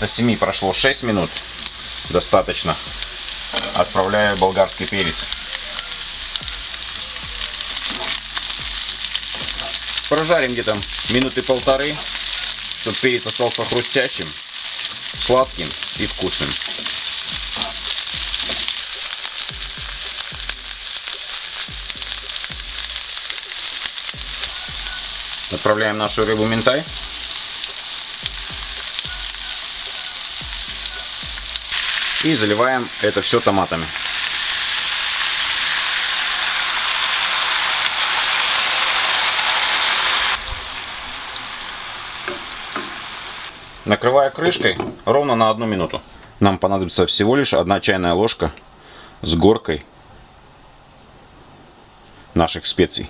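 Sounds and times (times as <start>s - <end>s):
vegetables sizzling in oil: 0.0s - 45.2s
spatula stirring vegetables: 0.2s - 34.3s
spatula scraping pan: 16.2s - 18.9s.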